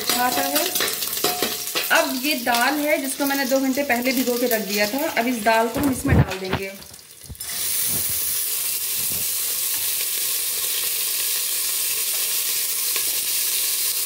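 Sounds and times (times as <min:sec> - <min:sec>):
spoon stirring in pot: 0:00.0 - 0:02.0
lentils sizzling in hot oil: 0:00.0 - 0:14.0.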